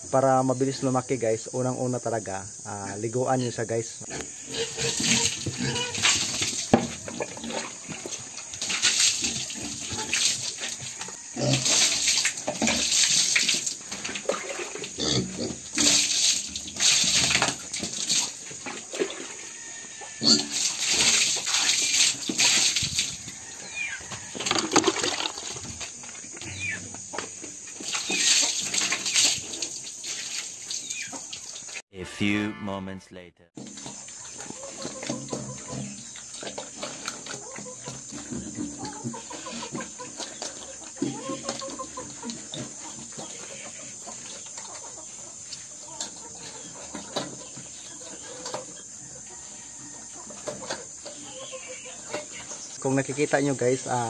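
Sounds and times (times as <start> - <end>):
pig noises: 2.5 - 22.9, 33.6 - 49.5
water splashing on concrete: 4.8 - 15.0, 15.7 - 19.4, 20.2 - 23.3, 27.8 - 31.7.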